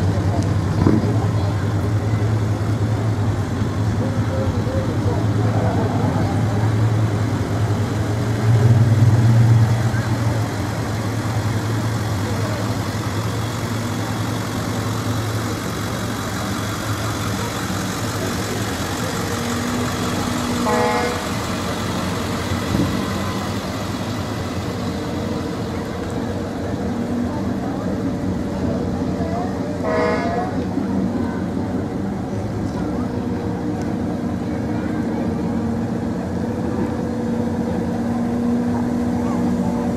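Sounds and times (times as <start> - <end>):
motor vehicle running: 0.0 - 39.9.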